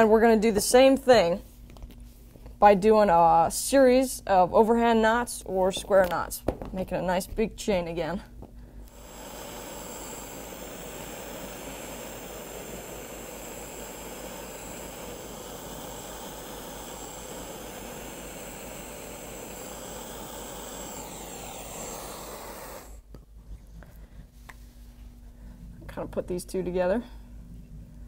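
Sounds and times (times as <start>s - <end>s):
jet-like rushing noise: 8.9s - 23.0s.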